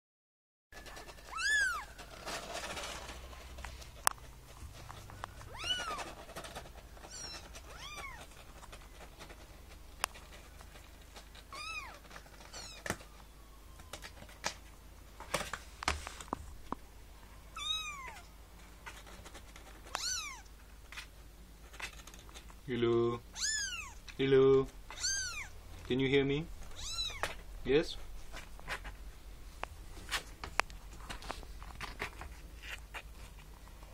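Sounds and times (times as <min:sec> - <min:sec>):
kitten meowing: 0:01.2 - 0:02.0, 0:05.4 - 0:06.1, 0:07.0 - 0:08.3, 0:11.5 - 0:13.2, 0:17.5 - 0:18.3, 0:19.9 - 0:20.5, 0:23.3 - 0:24.0, 0:24.9 - 0:25.6, 0:26.7 - 0:27.3.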